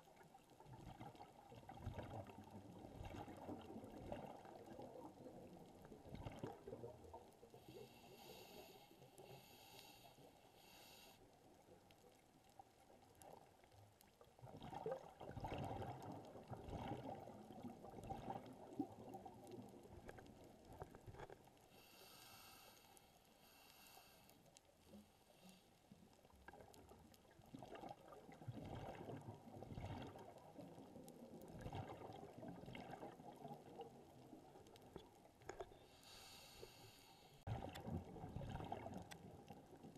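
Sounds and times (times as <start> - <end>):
exhaled air bubbling underwater: 0.0 - 10.3, 11.4 - 21.8, 25.8 - 39.9
diver inhaling through regulator: 7.6 - 11.2, 21.7 - 24.4, 35.8 - 37.5.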